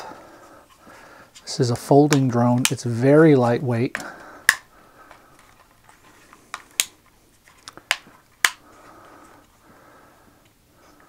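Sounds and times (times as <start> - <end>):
plastic drone arms clicking: 3.9 - 8.7
handling rustle: 5.0 - 9.6.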